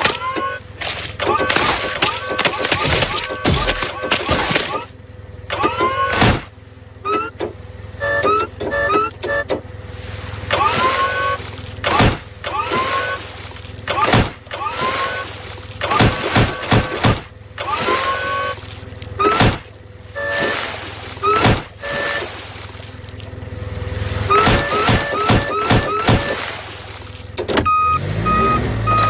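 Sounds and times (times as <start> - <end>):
forklift engine whining: 0.0 - 29.0
heavy thudding impacts: 6.1 - 6.6, 10.6 - 18.1, 19.1 - 23.3.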